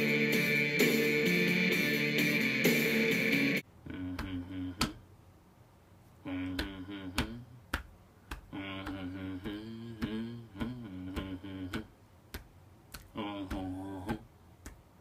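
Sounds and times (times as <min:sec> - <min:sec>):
man humming low chant: 0:03.8 - 0:05.1, 0:06.2 - 0:07.6, 0:08.5 - 0:12.0, 0:13.1 - 0:14.3.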